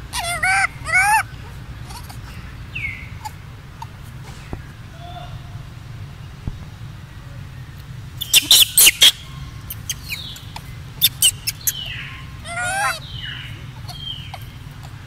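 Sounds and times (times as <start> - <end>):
young monkeys squealing: 0.0 - 4.5, 8.2 - 15.0.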